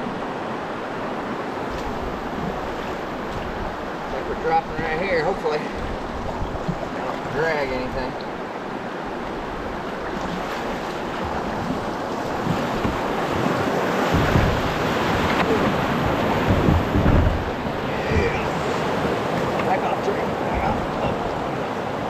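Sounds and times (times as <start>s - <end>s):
wind rumbling on microphone: 0.0s - 5.0s, 5.7s - 22.0s
stream water rushing: 0.0s - 22.0s.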